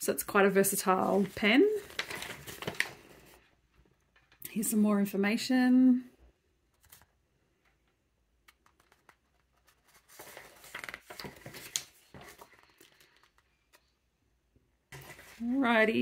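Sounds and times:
paper pages rustling: 0.8 - 3.4, 6.7 - 7.2, 8.5 - 14.0, 14.9 - 15.9.

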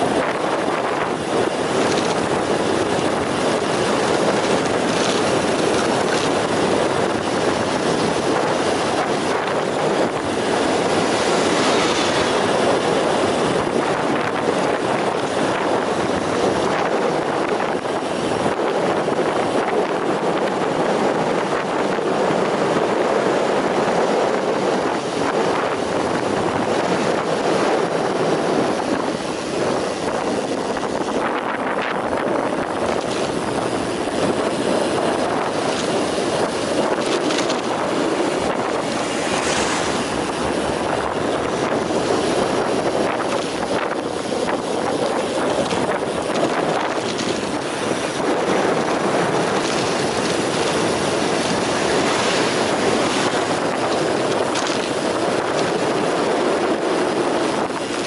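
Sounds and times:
tyres humming on asphalt: 0.0 - 58.0
wind rushing over microphone: 0.0 - 58.0.

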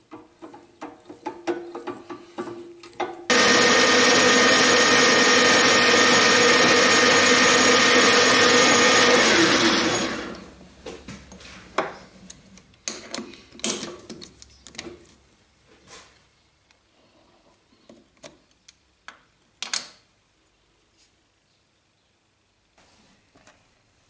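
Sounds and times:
metal lathe whining: 3.3 - 10.5.

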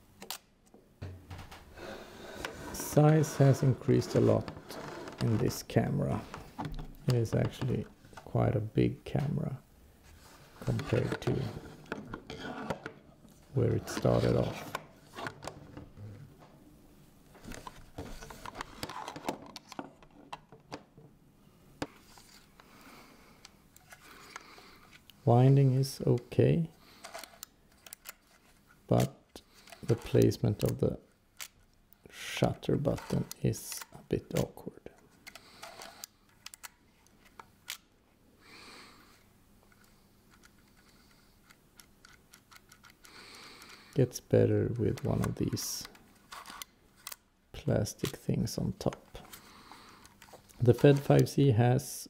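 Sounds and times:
camera mechanical clicks and rattles: 27.0 - 28.4, 35.2 - 37.9, 39.7 - 43.8.

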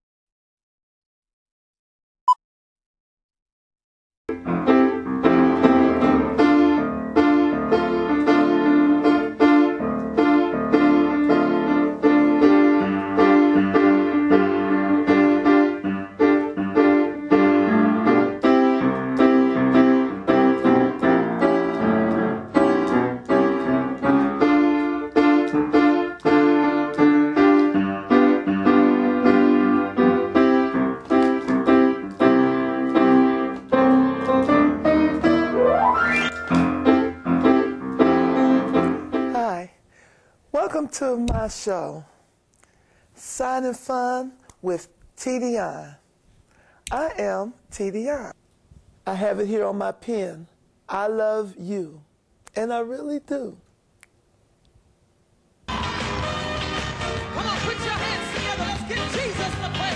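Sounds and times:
keyboard piano music: 4.3 - 39.5.

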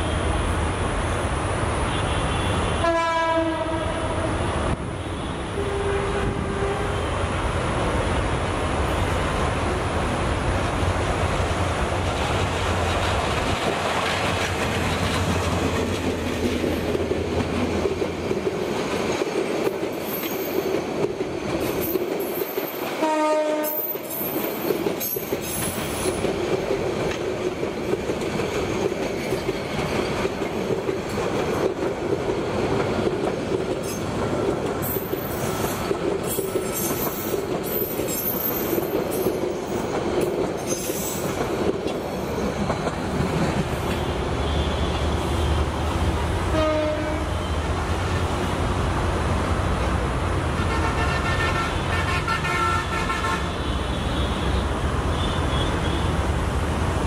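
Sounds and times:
train horn: 1.9 - 4.3, 5.1 - 7.2, 23.0 - 24.0, 46.5 - 47.6, 50.6 - 56.2
train coaches clattering over rails: 6.3 - 57.0.

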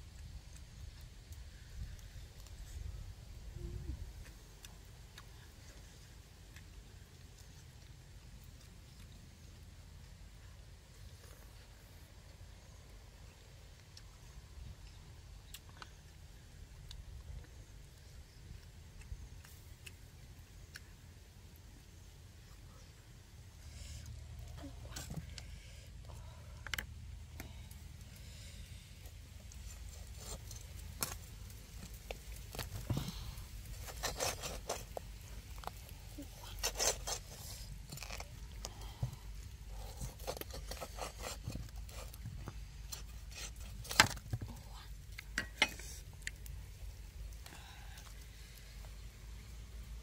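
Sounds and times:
knife scraping metal wok: 33.8 - 34.9.

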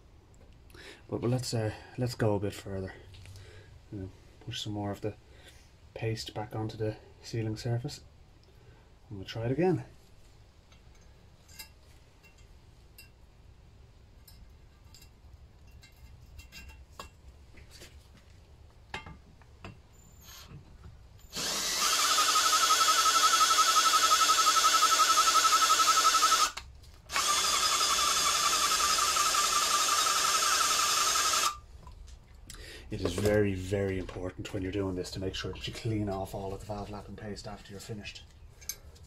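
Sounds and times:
drill spinning a valve: 21.3 - 31.6.

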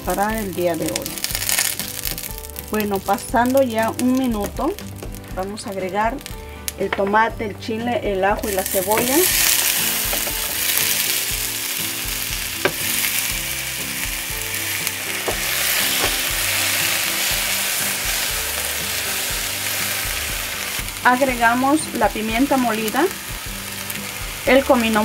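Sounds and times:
vegetables sizzling in hot oil: 0.0 - 6.9, 8.4 - 25.0.

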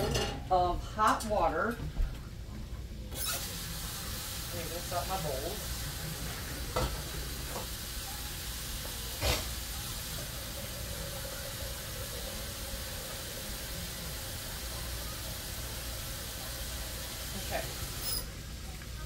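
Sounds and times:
vegetables sizzling in a frying pan: 3.2 - 19.0.

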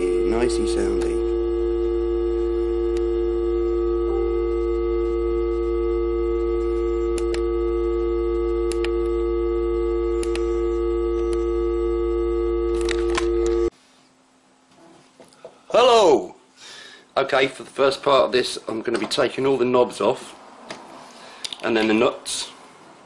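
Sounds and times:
low hum: 0.0 - 13.7
synthesizer drone: 0.0 - 13.7.

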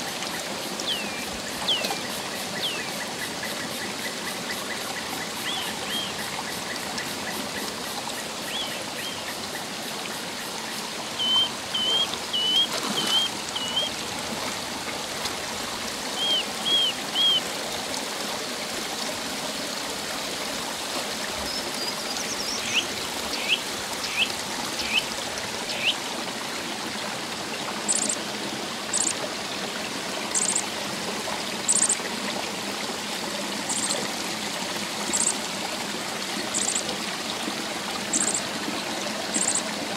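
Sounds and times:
stream trickling over rocks: 0.0 - 39.9
birds chirping: 0.8 - 2.9, 11.2 - 14.0, 16.2 - 17.4, 21.8 - 26.0.

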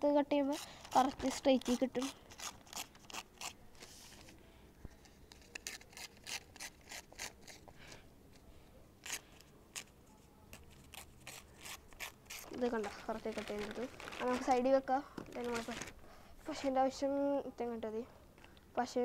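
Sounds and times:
paper ripping and rustling: 10.7 - 14.7, 15.3 - 16.0.

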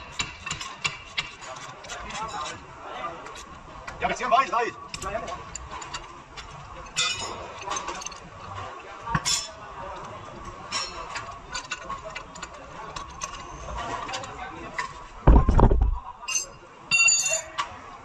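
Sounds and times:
heavy low thump and rumble: 15.2 - 16.1
metallic clinks of tools: 16.3 - 17.5.

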